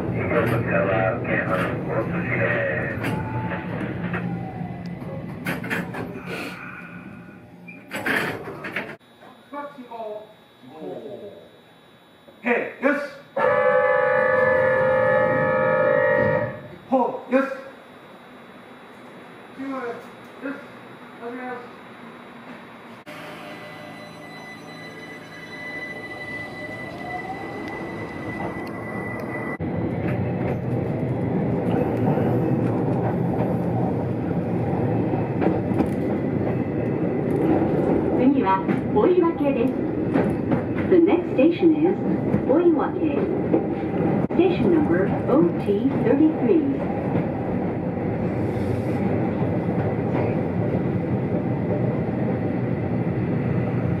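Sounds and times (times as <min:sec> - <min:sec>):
train rumble: 0:00.0 - 0:07.5, 0:19.6 - 0:54.0
electric train high whine: 0:00.0 - 0:54.0.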